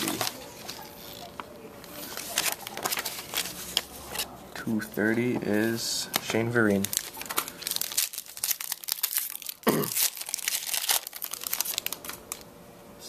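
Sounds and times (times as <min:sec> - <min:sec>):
card pack wrapper crinkling and tearing: 0:00.0 - 0:01.3, 0:02.1 - 0:04.3, 0:05.7 - 0:12.5
cards being handled: 0:00.0 - 0:12.4.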